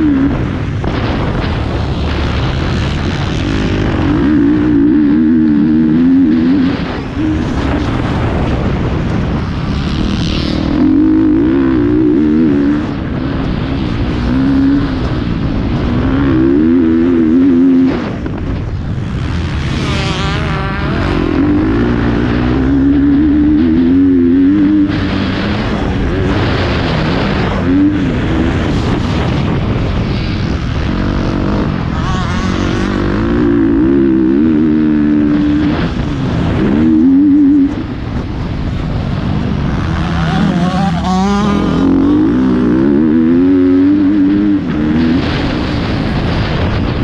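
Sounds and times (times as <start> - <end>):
motorbike engine revving: 0.0 - 47.0.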